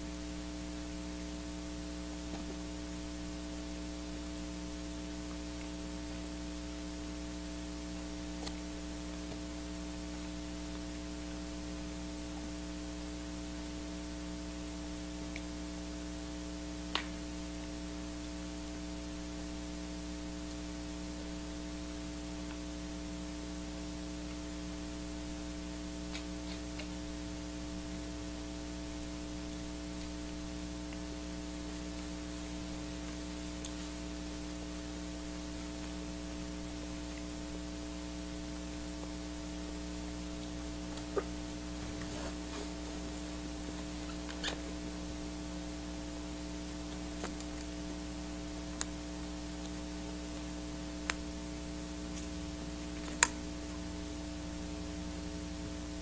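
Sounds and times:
electrical hum with tones: 0.0s - 56.0s.

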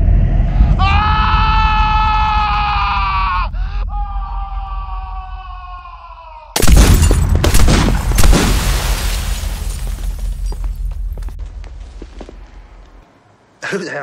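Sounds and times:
loud shattering crash: 6.6s - 10.6s.

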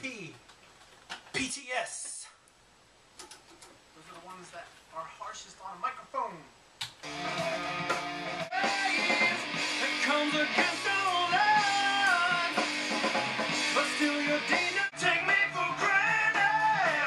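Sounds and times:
rock band playing: 7.0s - 17.0s
man singing: 8.5s - 12.7s, 13.6s - 17.0s.

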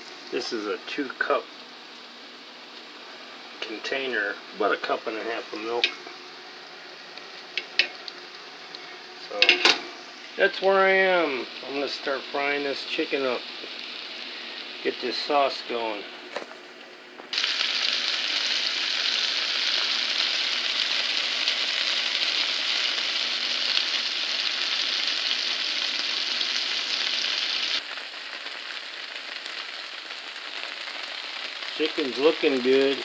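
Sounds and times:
chicken sizzling in a skillet: 0.0s - 33.0s.

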